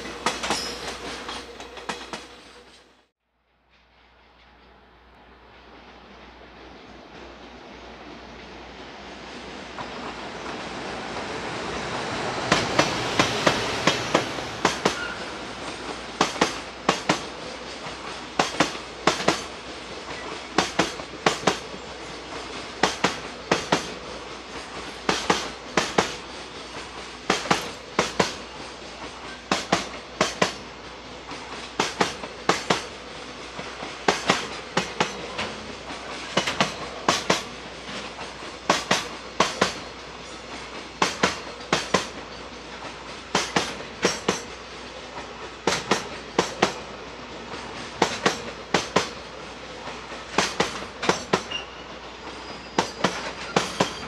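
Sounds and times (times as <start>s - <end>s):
train wheels clacking over rail joints: 0.0s - 3.0s, 9.7s - 54.0s
rolling rumble of train: 0.0s - 54.0s.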